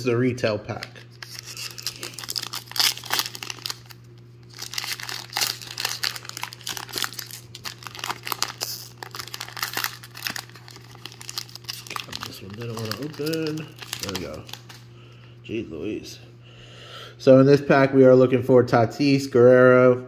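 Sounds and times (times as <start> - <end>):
plastic wrapper crinkling and tearing: 0.7 - 14.9.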